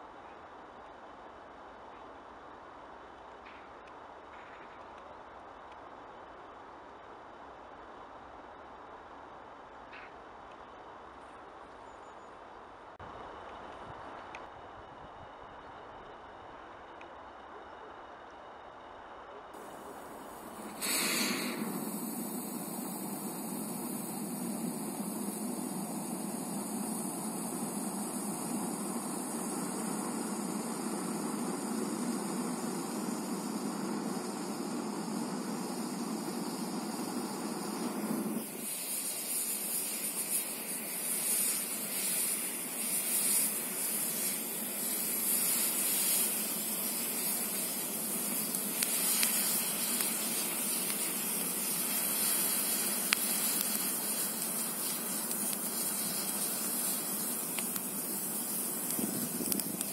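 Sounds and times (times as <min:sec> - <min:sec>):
fluctuating hiss: 0:19.5 - 0:59.9
smoke charge rushing: 0:19.6 - 0:59.9.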